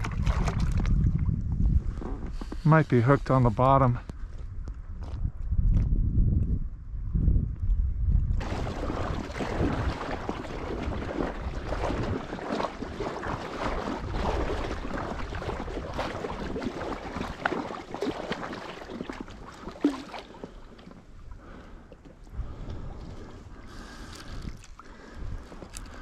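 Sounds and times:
wind rumbling on microphone: 0.0s - 26.0s
small waves lapping: 8.4s - 26.0s.

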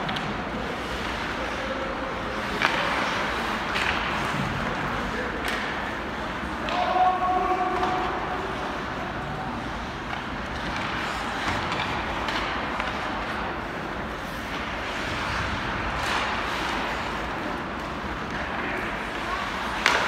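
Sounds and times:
crowd and rink noise: 0.0s - 20.0s.

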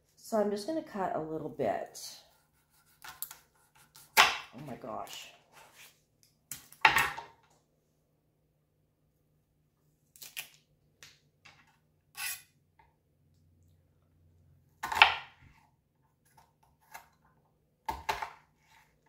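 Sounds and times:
knife on cutting board: 12.2s - 12.5s.

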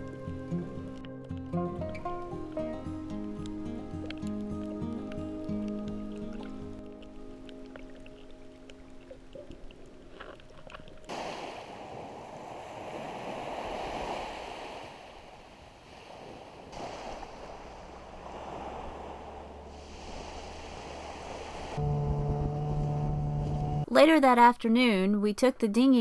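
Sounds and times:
ocean waves rushing in: 11.0s - 22.0s.

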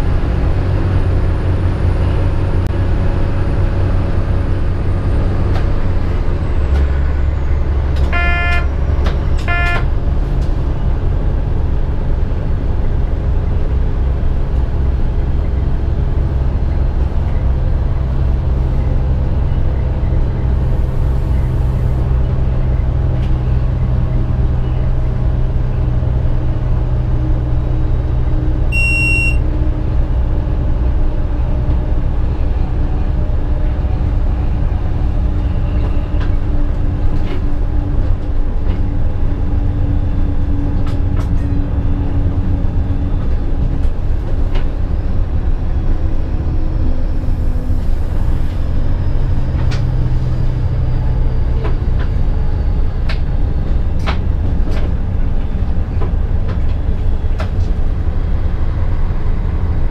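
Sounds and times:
train engine drone: 0.0s - 59.9s
train horn toots: 8.0s - 9.9s
high electronic beep: 28.7s - 29.4s.

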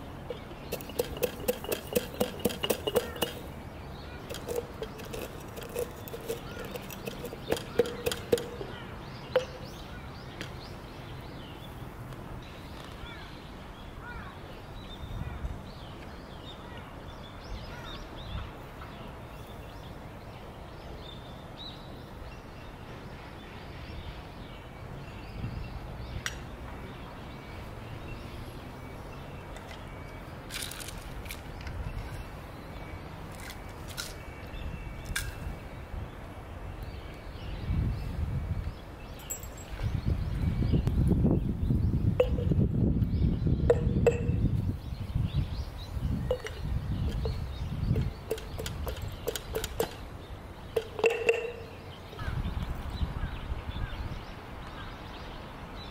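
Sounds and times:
birds chirping: 0.0s - 55.9s
pestle pounding spices in glass jar: 0.3s - 3.5s, 4.3s - 8.7s, 48.0s - 50.0s, 50.8s - 51.8s.

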